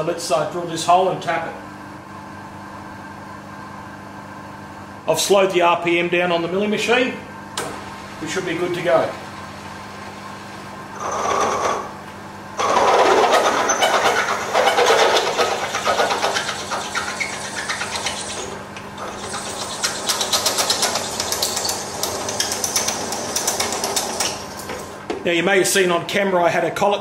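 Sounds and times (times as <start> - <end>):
milling machine motor humming: 7.5 - 25.2.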